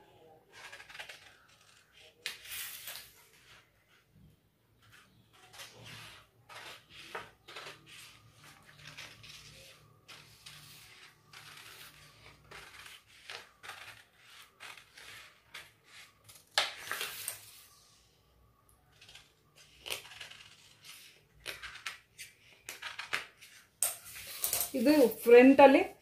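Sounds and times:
paper rustling and crackling: 0:04.8 - 0:15.8.

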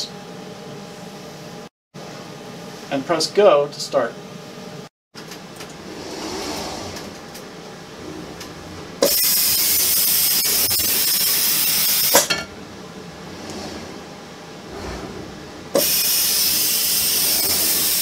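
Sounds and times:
robot arm mechanical whir: 0:05.7 - 0:12.2, 0:13.2 - 0:18.0
loud steady suction hiss: 0:15.8 - 0:18.0.

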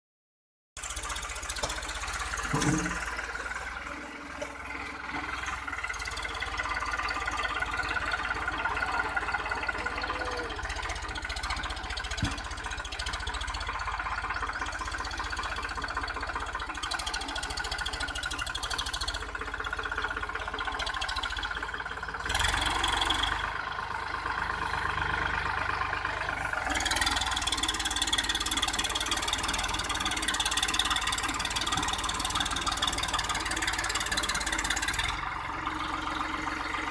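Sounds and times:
tractor diesel engine under load: 0:00.8 - 0:36.9.

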